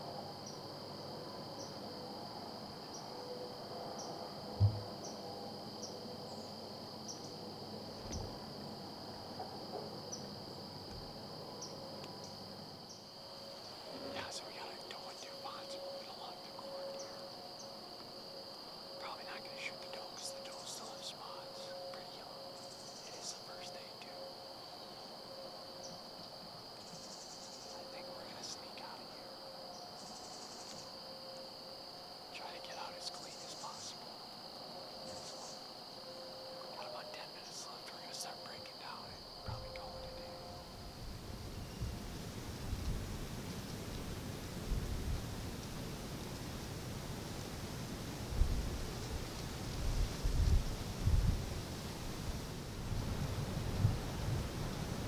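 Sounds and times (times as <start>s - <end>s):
crickets trilling: 0.0s - 55.0s
higher pulsing insect trill: 0.0s - 55.0s
low thump: 4.6s - 5.0s.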